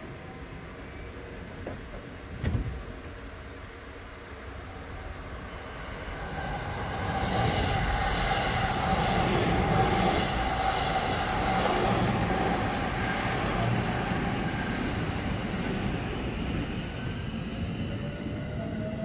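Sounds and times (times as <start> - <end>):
train wheels rumbling on rails: 5.6 - 19.0.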